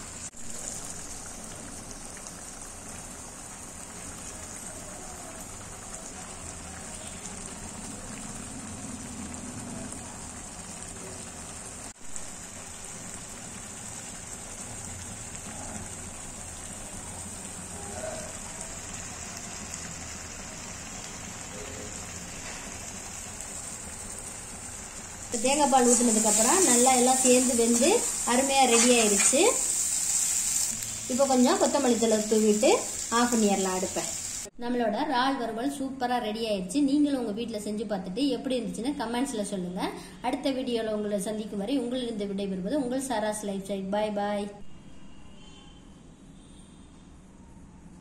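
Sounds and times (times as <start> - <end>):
gravy sizzling and bubbling: 0.0 - 34.6.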